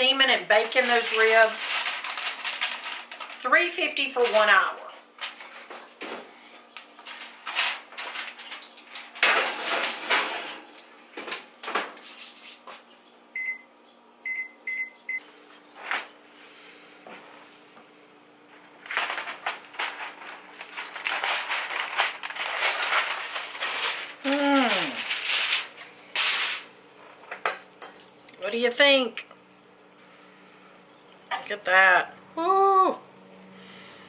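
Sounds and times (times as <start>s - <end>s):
aluminium foil crinkling: 0.0s - 6.0s, 6.8s - 10.8s, 18.4s - 34.0s
oven keypad beeps: 13.3s - 15.3s.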